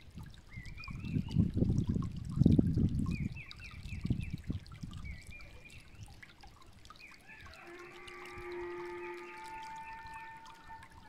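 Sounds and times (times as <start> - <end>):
stream trickling over stones: 0.0 - 11.0
birds' held notes: 7.0 - 11.0.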